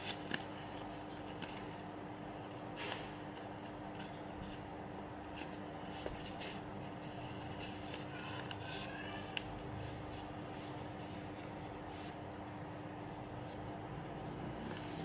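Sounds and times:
paper rustling and crinkling: 0.0s - 1.8s, 5.4s - 12.2s
steady low hum: 0.0s - 15.0s.

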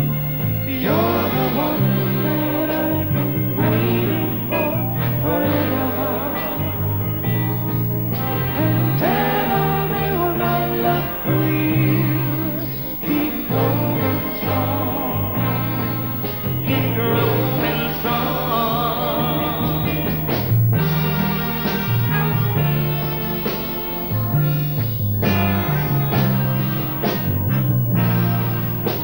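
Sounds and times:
vocal group singing ballad: 0.0s - 20.5s
band accompaniment: 0.0s - 29.0s
steady bass line: 0.0s - 29.0s.

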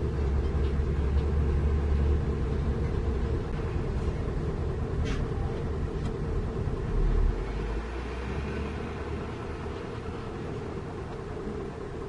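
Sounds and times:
diesel truck engines rumbling: 0.0s - 12.0s.

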